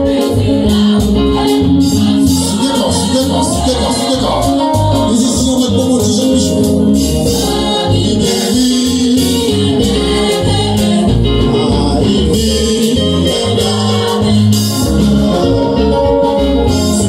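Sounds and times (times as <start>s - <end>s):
gospel singing: 0.0s - 17.0s
loud band music: 0.0s - 17.0s
pulsing bass beat: 0.0s - 17.0s.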